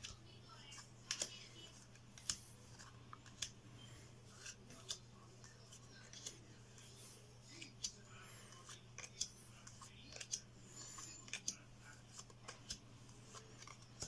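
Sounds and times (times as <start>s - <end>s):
cards flicked with papery snap: 0.0s - 3.6s, 4.4s - 5.1s, 6.0s - 6.4s, 7.5s - 10.5s, 11.1s - 14.0s.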